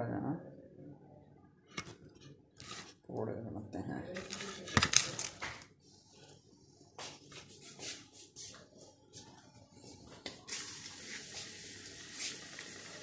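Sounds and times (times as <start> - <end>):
batter sizzling in hot oil: 10.5 - 13.0.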